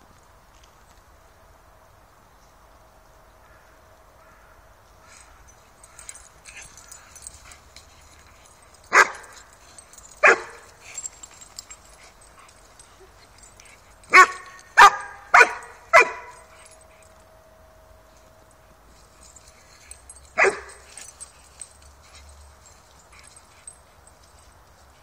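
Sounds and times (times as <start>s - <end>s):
dog barking: 8.9s - 9.4s, 10.2s - 10.7s, 14.1s - 16.5s, 20.4s - 20.9s.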